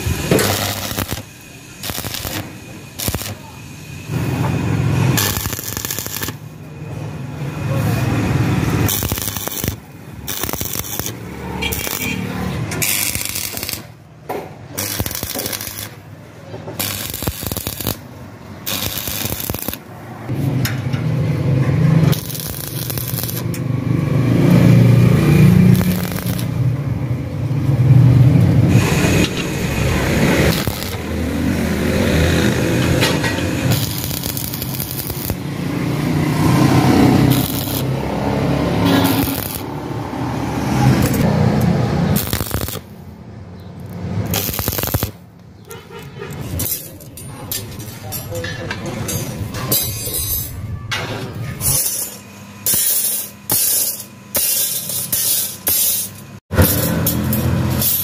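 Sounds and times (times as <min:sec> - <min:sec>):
electric arc welding: 0:00.0 - 0:06.6, 0:07.6 - 0:20.4, 0:21.8 - 0:26.8, 0:28.6 - 0:43.1, 0:44.0 - 0:45.2, 0:51.6 - 0:58.0
low motor drone: 0:18.6 - 0:43.0.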